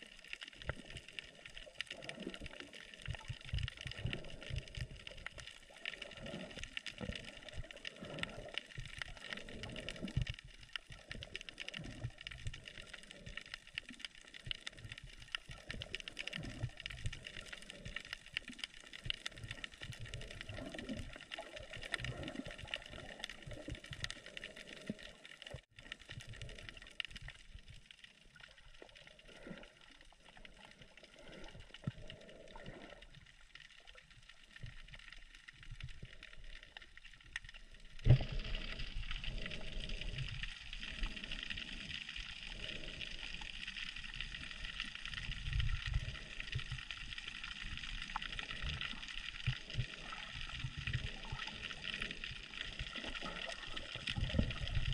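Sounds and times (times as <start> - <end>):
low thumps of moving water: 0.0 - 42.2
water sloshing and gurgling: 0.0 - 54.9.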